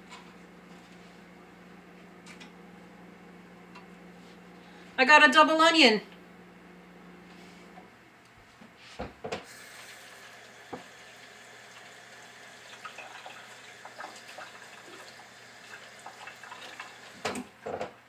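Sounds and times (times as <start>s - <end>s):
kitchen faucet running: 9.4s - 17.7s.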